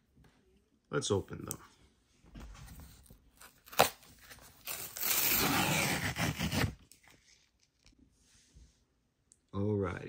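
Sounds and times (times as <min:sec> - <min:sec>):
cardboard tearing: 0:03.4 - 0:07.0.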